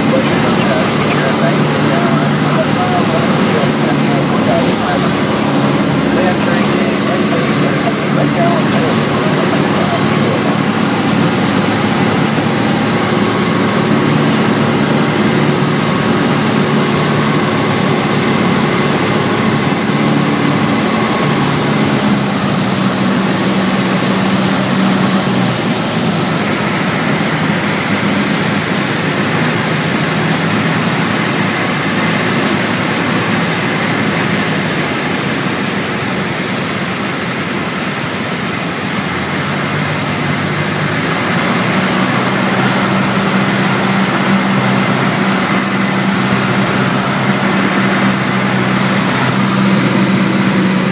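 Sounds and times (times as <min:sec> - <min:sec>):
air noise: 0:00.0 - 0:29.6
light aircraft engine drone: 0:00.0 - 0:50.9.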